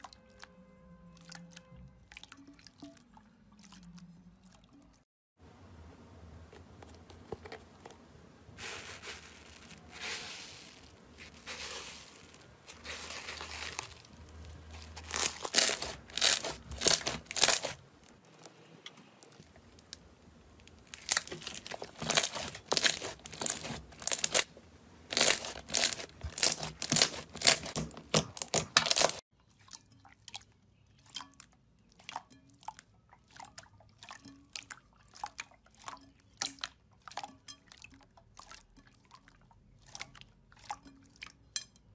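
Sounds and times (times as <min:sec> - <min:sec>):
slime squishing: 0:06.6 - 0:29.2
slime crackling and popping: 0:08.6 - 0:18.5, 0:20.6 - 0:24.5, 0:25.1 - 0:29.2.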